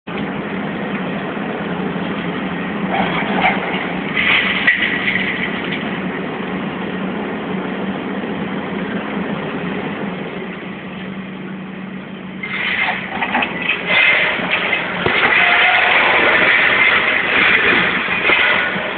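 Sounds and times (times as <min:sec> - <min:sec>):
diesel engine running: 0:00.1 - 0:18.9
machinery clattering: 0:02.1 - 0:06.2, 0:12.4 - 0:18.9.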